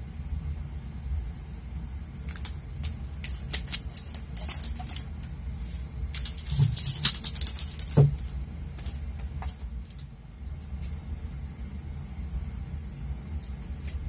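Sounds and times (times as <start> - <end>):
foil sachets crinkling: 3.2 - 5.1.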